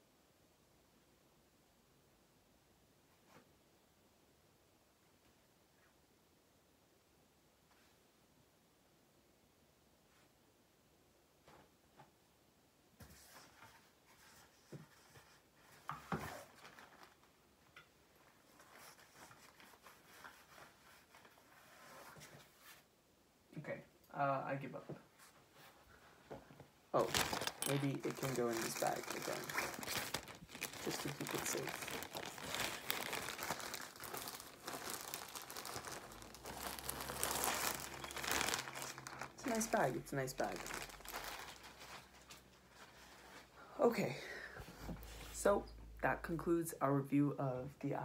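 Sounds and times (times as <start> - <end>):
gown rustling: 25.1 - 43.7
plastic bag crinkling: 27.0 - 43.4.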